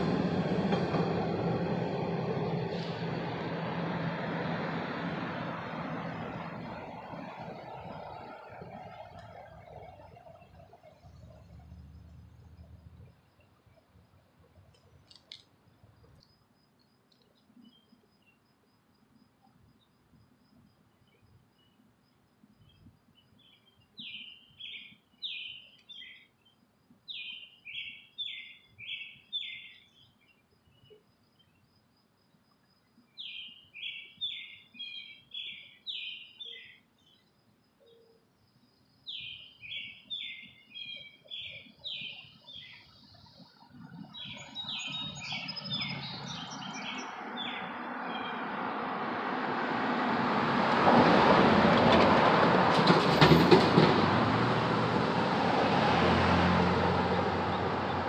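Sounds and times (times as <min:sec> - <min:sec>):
road vehicles approaching: 0:00.0 - 0:16.3, 0:39.1 - 0:58.0
songbird singing: 0:05.8 - 0:48.7, 0:56.0 - 0:58.0.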